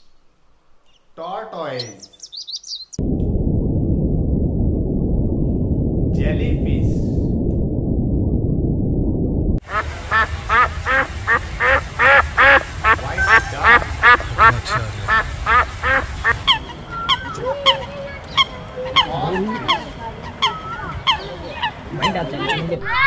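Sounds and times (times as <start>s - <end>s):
geese honking: 9.6s - 23.0s.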